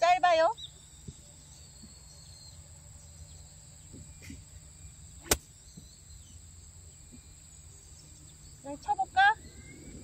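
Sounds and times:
faint background hum: 0.0 - 10.0
golf club striking ball: 5.2 - 5.6.

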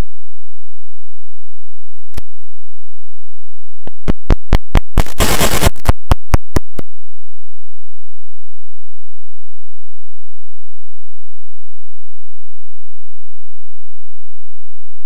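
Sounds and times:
burst of harsh static: 3.9 - 6.8
sharp clicks: 3.9 - 6.8.

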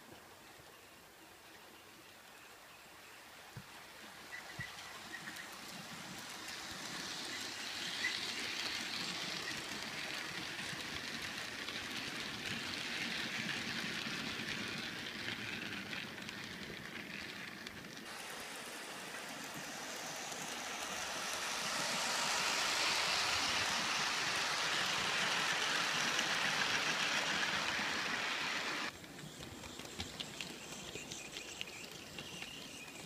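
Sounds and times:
model train wheels rattling on rails: 4.0 - 33.0.

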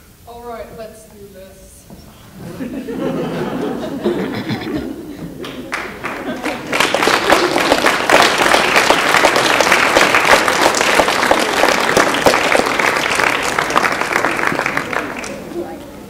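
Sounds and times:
audience applauding: 3.9 - 16.0.

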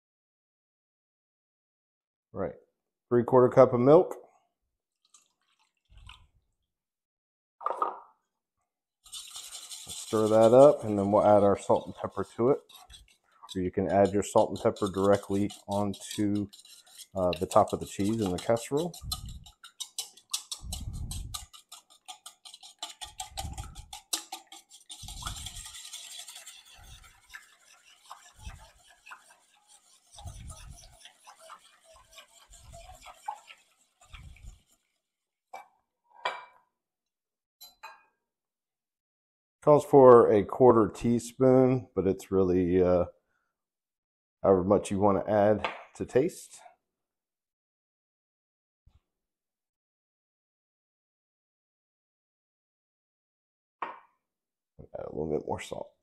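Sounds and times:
milk splashing into bowl: 4.9 - 6.4
whisk scraping metal bowl: 9.0 - 35.3.

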